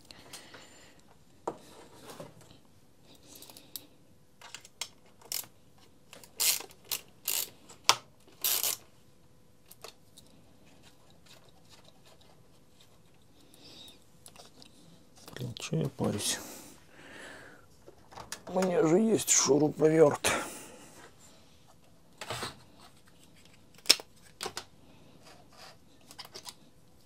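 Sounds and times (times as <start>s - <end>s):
ratchet wrench clicking: 6.4s - 7.5s.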